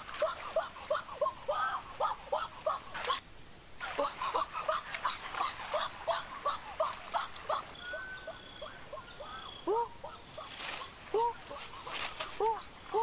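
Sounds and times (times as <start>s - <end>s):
high-pitched whine: 7.8s - 13.0s.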